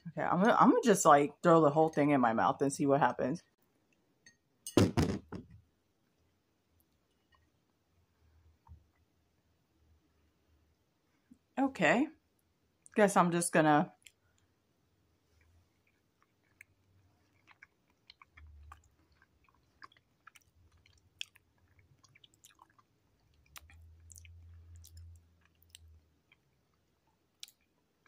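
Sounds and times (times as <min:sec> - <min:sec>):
chewing: 0:15.2 - 0:28.0.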